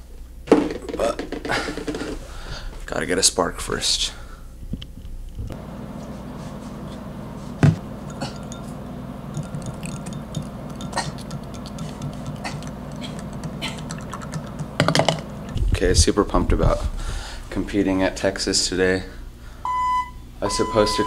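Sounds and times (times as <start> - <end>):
steady low hum: 0.0 - 21.0
stirrer clinking against glass: 8.0 - 15.2.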